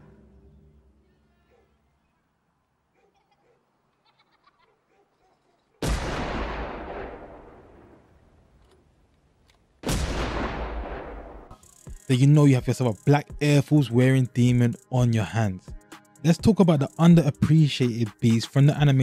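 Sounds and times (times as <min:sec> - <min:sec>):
loud sudden blasts: 0:05.8 - 0:08.0, 0:09.8 - 0:11.6.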